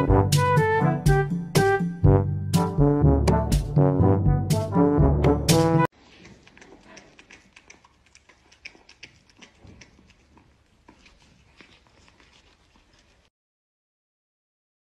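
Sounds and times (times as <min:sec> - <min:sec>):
cat chewing corn: 0:05.9 - 0:13.3.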